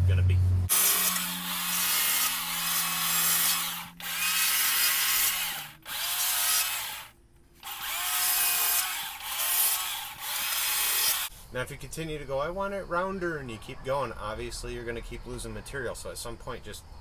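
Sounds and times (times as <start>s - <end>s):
chainsaw cutting log: 0.7s - 11.3s.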